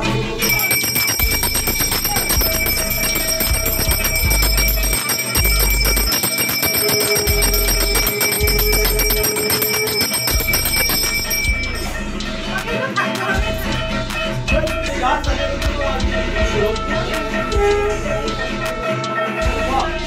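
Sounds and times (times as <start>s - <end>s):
hand bell ringing rapidly: 0.4s - 12.1s.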